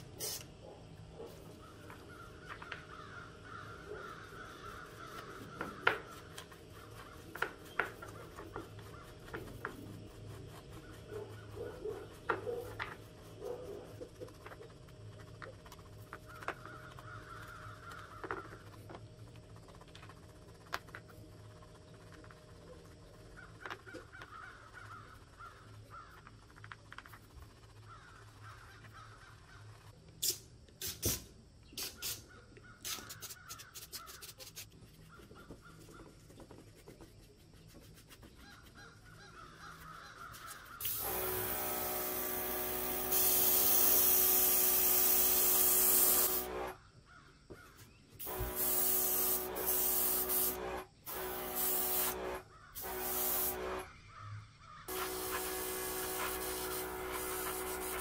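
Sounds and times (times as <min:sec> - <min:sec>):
airbrush spraying in hissing bursts: 0:00.0 - 0:00.5, 0:30.2 - 0:34.7, 0:40.4 - 0:46.8, 0:48.2 - 0:53.8, 0:54.9 - 0:58.0
brush scrubbing small parts: 0:01.3 - 0:30.0, 0:32.8 - 0:46.7, 0:48.2 - 0:53.8, 0:54.9 - 0:58.0.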